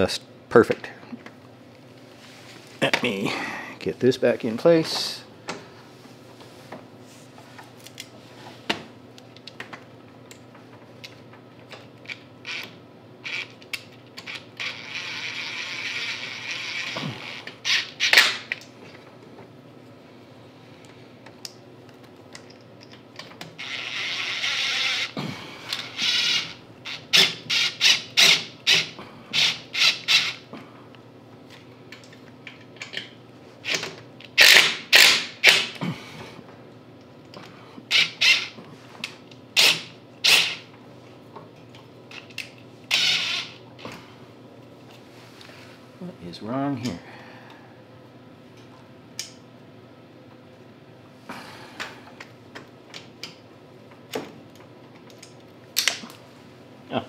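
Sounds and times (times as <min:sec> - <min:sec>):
cordless driver whirring: 0:12.1 - 0:18.4, 0:23.5 - 0:30.4, 0:34.4 - 0:35.7, 0:42.9 - 0:43.6
driver short sharp bursts: 0:34.4 - 0:35.8, 0:39.6 - 0:40.6, 0:42.9 - 0:43.6.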